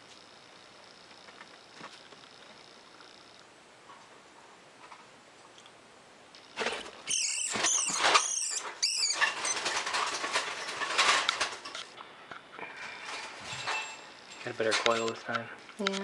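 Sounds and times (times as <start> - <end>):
rat squealing: 7.0 - 9.9.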